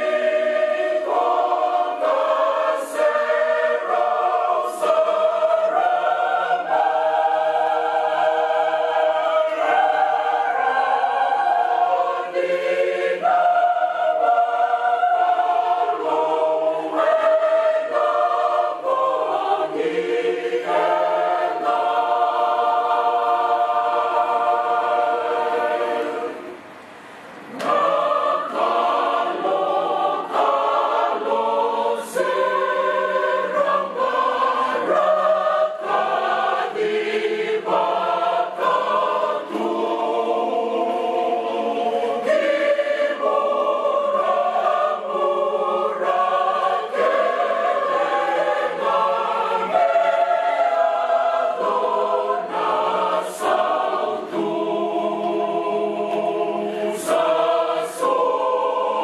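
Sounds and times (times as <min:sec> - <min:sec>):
church choir singing carol: 0:00.0 - 0:59.0.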